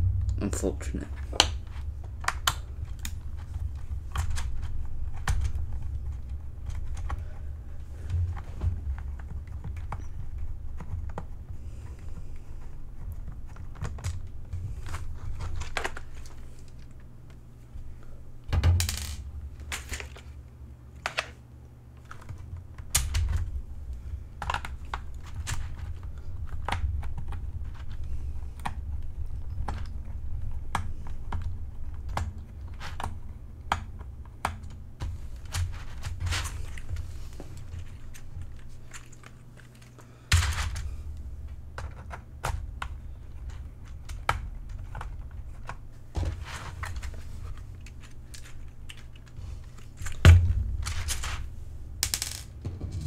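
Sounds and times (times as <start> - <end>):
steady low hum: 0.0 - 53.0
plastic parts clicking: 13.0 - 17.4, 18.5 - 21.4, 24.4 - 40.9, 41.7 - 51.4.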